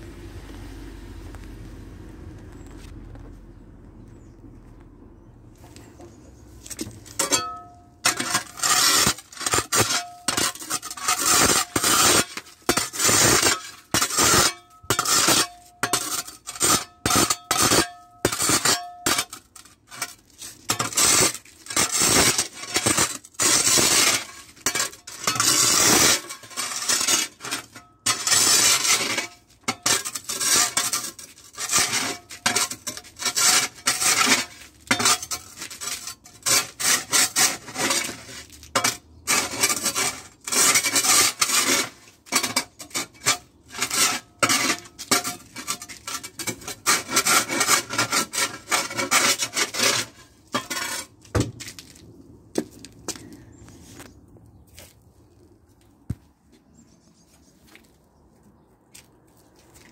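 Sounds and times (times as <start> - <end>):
spade scraping ice: 6.0 - 52.0.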